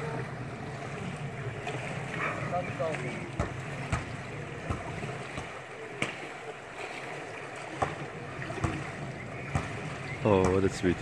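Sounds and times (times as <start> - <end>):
water splashing and churning: 0.0 - 11.0.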